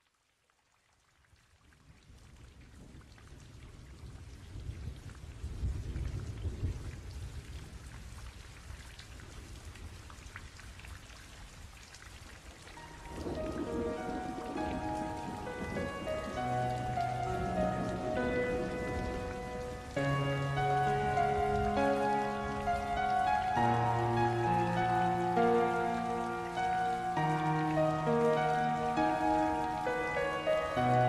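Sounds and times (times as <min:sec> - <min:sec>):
rain: 0:00.0 - 0:31.0
background music melody: 0:12.8 - 0:31.0
thunder rumbling: 0:12.8 - 0:31.0.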